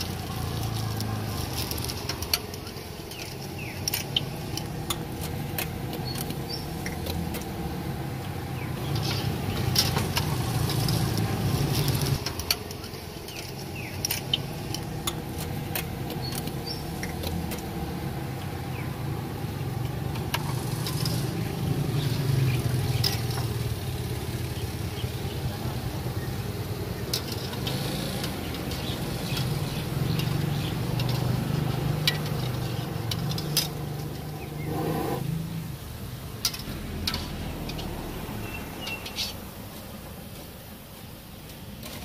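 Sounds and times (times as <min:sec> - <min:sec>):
food sizzling in hot oil: 0:00.0 - 0:07.6, 0:08.8 - 0:18.2.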